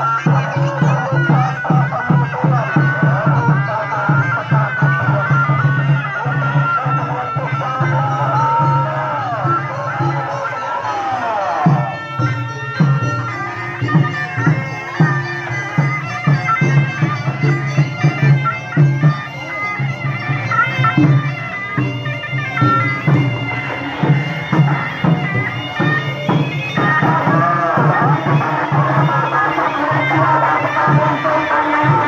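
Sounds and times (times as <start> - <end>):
reedy wind instrument melody: 0.0 - 32.0
steady drum beat: 11.0 - 32.0.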